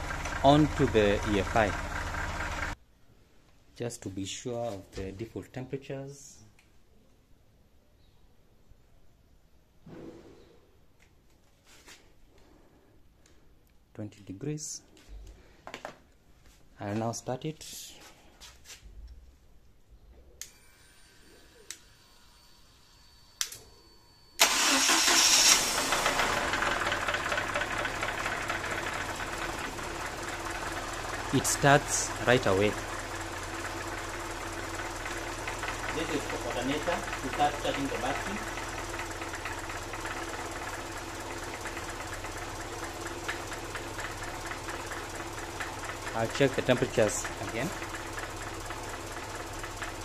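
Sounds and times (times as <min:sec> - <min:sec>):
car engine starting and idling: 0:00.0 - 0:02.8, 0:24.4 - 0:50.0
sharp click: 0:23.4 - 0:23.7.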